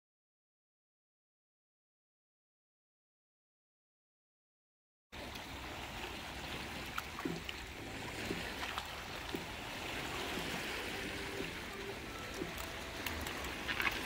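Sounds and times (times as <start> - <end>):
light clicks and splashes: 5.2 - 14.0
small waves lapping on rocks: 5.2 - 14.0.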